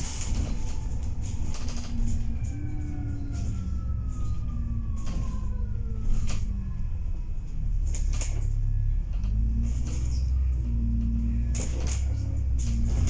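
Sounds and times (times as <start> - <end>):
diesel bus engine rumble: 0.0 - 13.0
drivetrain whine: 0.0 - 13.0.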